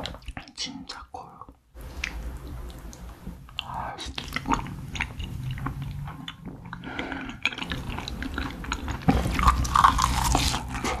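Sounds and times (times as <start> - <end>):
wet chewing: 1.8 - 11.0.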